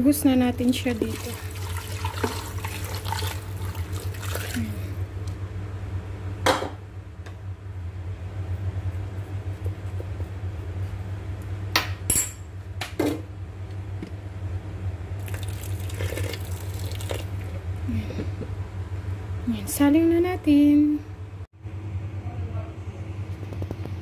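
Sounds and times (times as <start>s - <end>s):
steady low hum: 0.0s - 24.0s
broth poured into a metal pot: 1.1s - 4.6s, 15.2s - 17.5s.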